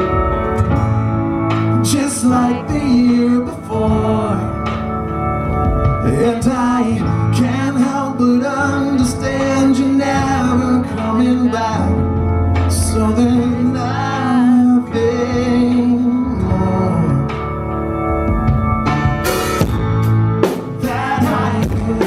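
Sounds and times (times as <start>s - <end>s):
drums: 0.0s - 22.0s
electric guitar: 0.0s - 22.0s
man singing: 1.6s - 5.0s, 5.9s - 17.6s, 20.5s - 22.0s.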